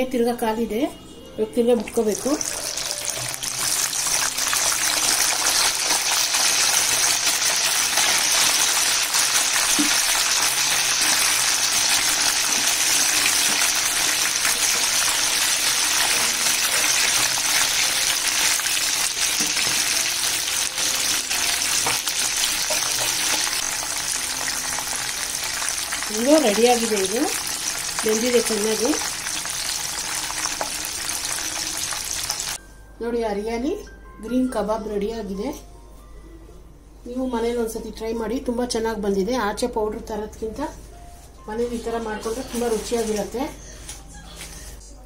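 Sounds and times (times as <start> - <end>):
chicken deep-frying in oil: 1.8 - 32.6.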